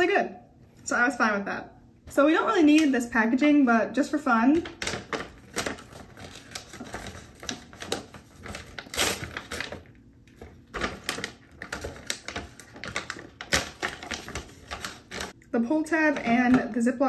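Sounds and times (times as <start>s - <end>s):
paper bag crinkling: 4.6s - 15.4s
paper tear strip ripping: 4.8s - 9.8s.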